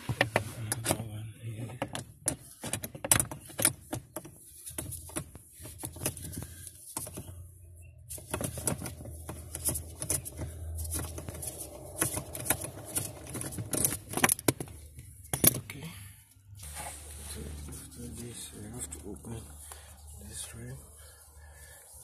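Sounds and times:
low hum: 0:08.6 - 0:22.0.

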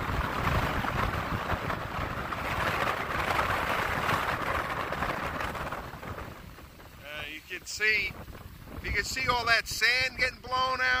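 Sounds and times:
heavy surf breaking: 0:00.0 - 0:11.0
wind buffeting microphone: 0:00.0 - 0:11.0.

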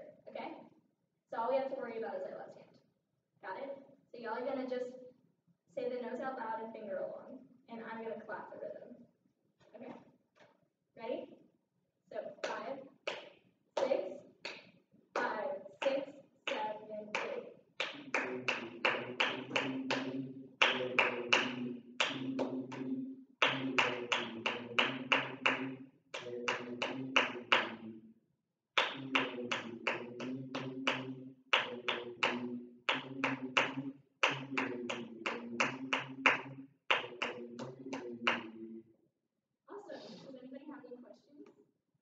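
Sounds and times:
hand claps in rhythm: 0:12.4 - 0:28.0, 0:28.8 - 0:38.6
low voices chanting: 0:17.8 - 0:28.0, 0:28.8 - 0:38.7.

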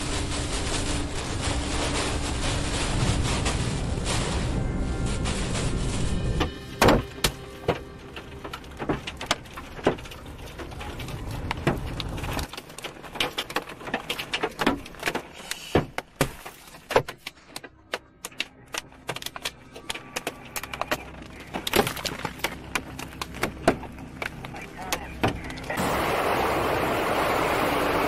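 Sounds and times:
low rumble: 0:00.0 - 0:12.6.

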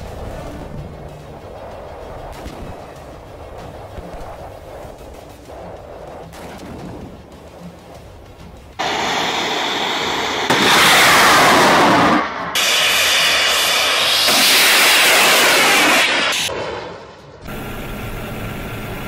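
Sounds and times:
rocket booster launch roar: 0:08.8 - 0:17.0.

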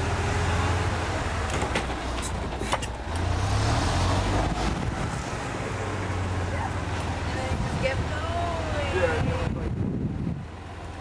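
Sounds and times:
golf cart humming: 0:00.0 - 0:11.0.

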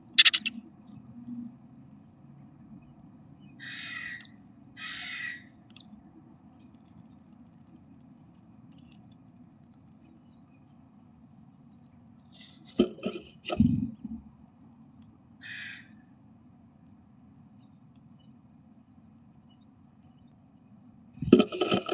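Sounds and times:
nestlings chirping: 0:00.0 - 0:00.6
bird scrabbling against nest box: 0:12.3 - 0:14.1, 0:21.2 - 0:21.9.

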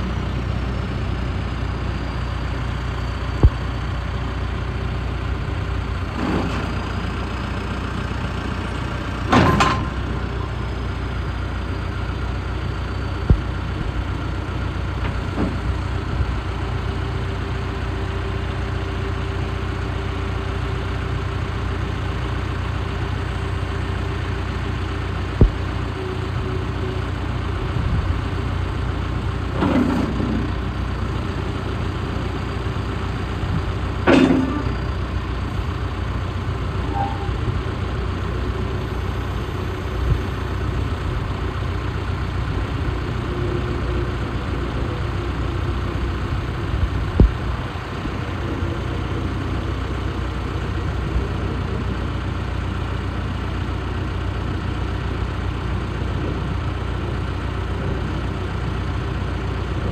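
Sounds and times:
steady whine: 0:00.0 - 0:16.3, 0:23.0 - 0:29.2
diesel engine running at low speed: 0:00.0 - 0:59.9
metal clanking: 0:09.2 - 0:10.1, 0:34.1 - 0:34.8.

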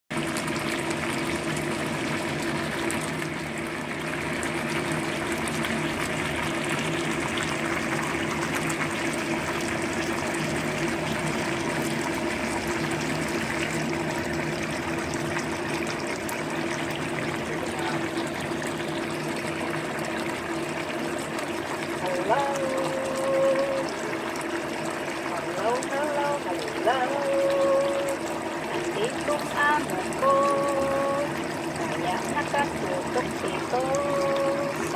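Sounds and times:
sauce bubbling and popping: 0:00.2 - 0:22.0, 0:23.8 - 0:25.5, 0:28.0 - 0:32.3
low hum: 0:25.3 - 0:34.9.

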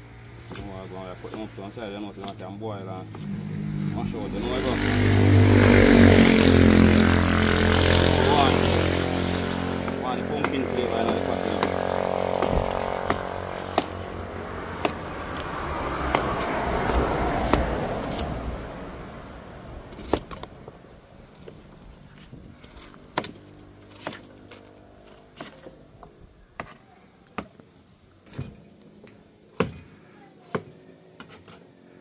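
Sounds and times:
vehicle passing: 0:00.0 - 0:25.3.

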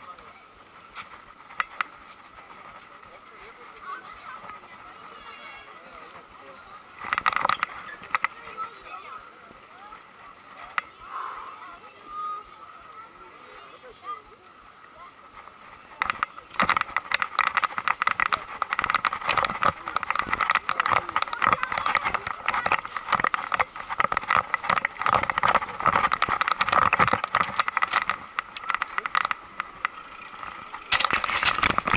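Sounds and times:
bicycle freehub ratchet ticking: 0:15.4 - 0:31.9.

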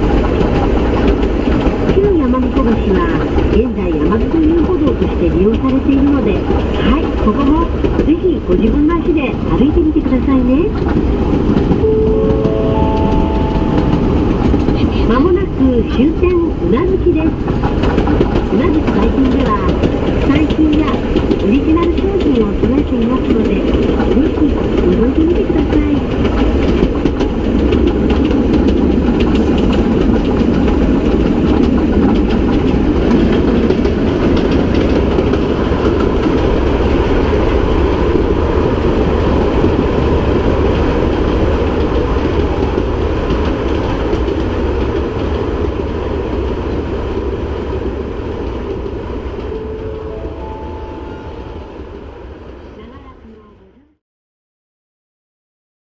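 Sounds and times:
train wheels rumbling on rail: 0:00.0 - 0:54.0
clicking over rail joints: 0:10.1 - 0:37.2, 0:39.2 - 0:46.5.

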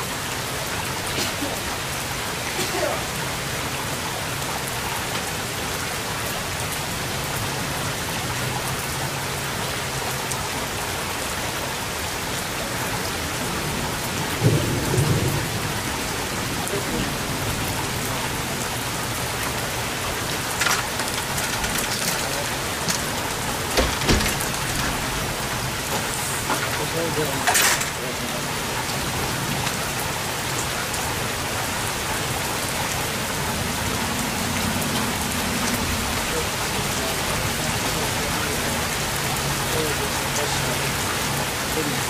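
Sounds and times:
rain falling: 0:00.0 - 0:42.0
thunder rumble: 0:13.1 - 0:27.4.

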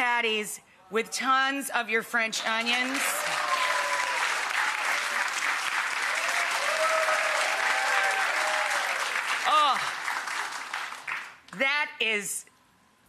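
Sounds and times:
audience applauding: 0:02.4 - 0:11.4.

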